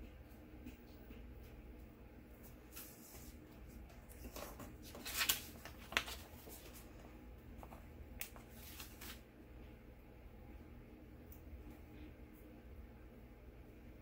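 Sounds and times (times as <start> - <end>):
paper rustling and clicks: 3.9 - 6.9, 7.6 - 9.2.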